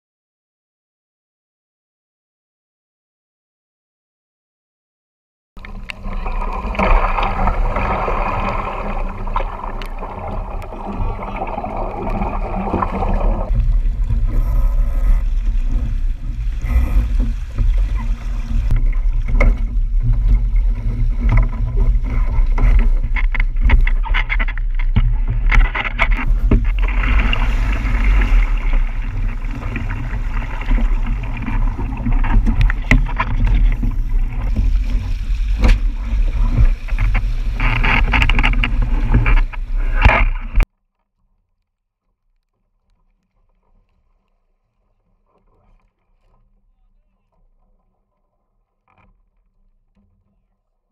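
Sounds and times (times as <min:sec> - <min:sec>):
water rushing along a hull: 0:05.6 - 0:40.6
heavy splashing: 0:05.7 - 0:40.6.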